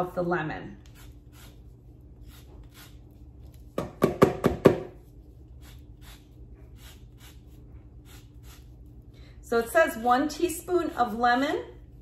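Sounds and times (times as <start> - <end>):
lemon scraping on zester: 0.8 - 3.3, 5.2 - 8.9, 9.5 - 11.6.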